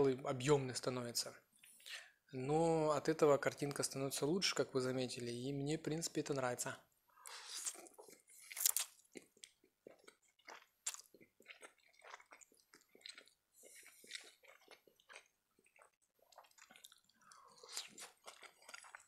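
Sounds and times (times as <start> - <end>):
chewing with wet mouth clicks: 7.7 - 19.0.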